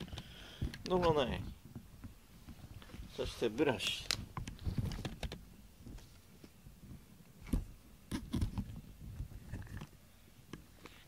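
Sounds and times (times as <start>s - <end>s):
brush rustling through cat fur: 3.0s - 4.0s.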